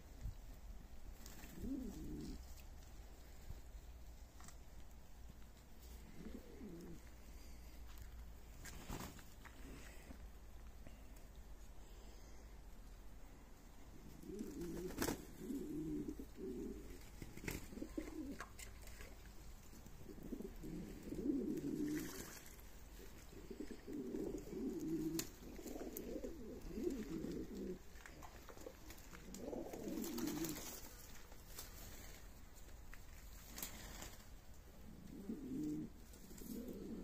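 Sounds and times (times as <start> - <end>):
pigeons cooing: 1.2 - 3.6, 5.8 - 7.9, 13.8 - 31.0, 33.8 - 37.0.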